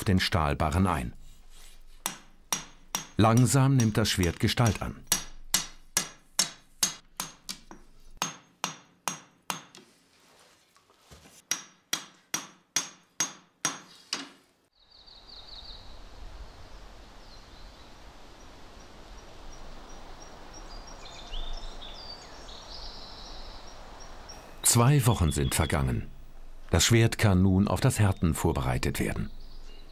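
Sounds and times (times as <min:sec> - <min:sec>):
outdoor ambience: 0:00.0 - 0:29.9
hammer striking steel on anvil: 0:02.0 - 0:09.8, 0:11.5 - 0:14.3.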